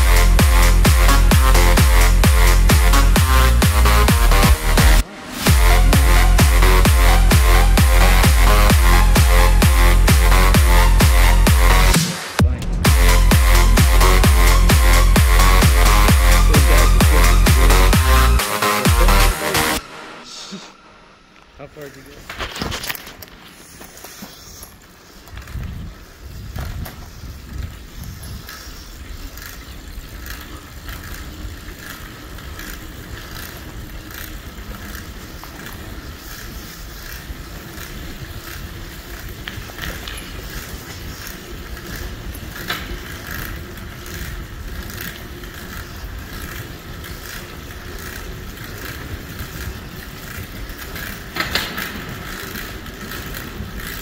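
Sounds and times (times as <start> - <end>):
bike rattles and clicks: 0.0 - 19.8, 21.3 - 54.0
bicycle tyre rumble on concrete: 0.0 - 54.0.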